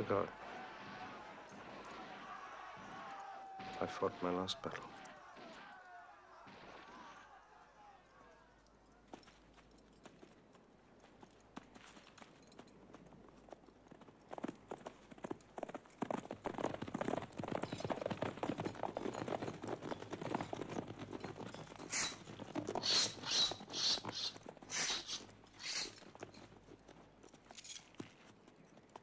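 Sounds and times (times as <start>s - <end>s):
hooves and marching feet: 0.0s - 29.0s
short hisses: 22.8s - 26.0s.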